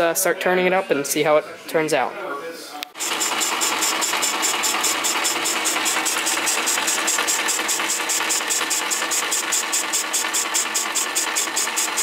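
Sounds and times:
lathe motor hum: 3.0 - 12.0.

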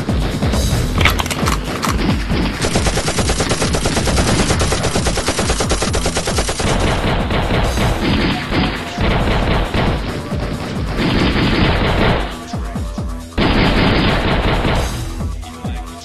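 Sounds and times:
machine-gun fire: 1.0 - 12.4, 13.4 - 15.0.

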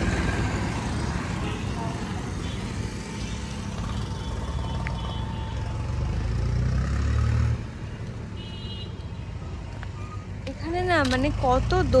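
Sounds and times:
vehicle passing: 0.0 - 8.4.

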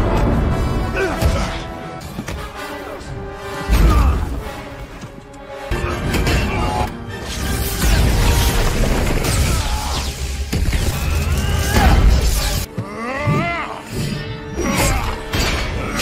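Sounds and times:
dramatic music: 0.0 - 16.0.

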